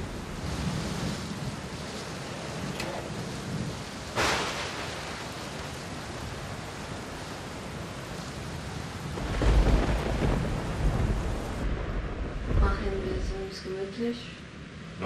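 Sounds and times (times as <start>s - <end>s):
steady rain: 0.0s - 15.0s
thunder: 2.6s - 5.5s, 9.1s - 13.6s.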